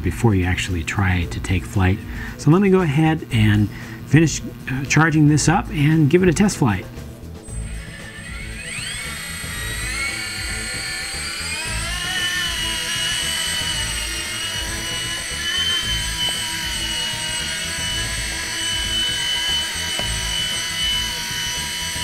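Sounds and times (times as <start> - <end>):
rc helicopter motor whining: 7.4 - 22.0.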